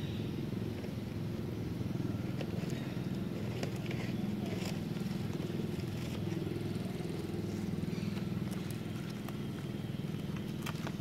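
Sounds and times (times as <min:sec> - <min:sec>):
engine running with low pulsing: 0:00.0 - 0:11.0.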